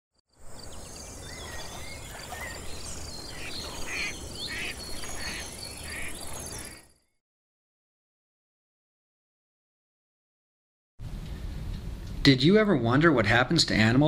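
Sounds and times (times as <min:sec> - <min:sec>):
insects calling: 0:00.3 - 0:07.2
bird chirps: 0:00.4 - 0:07.2.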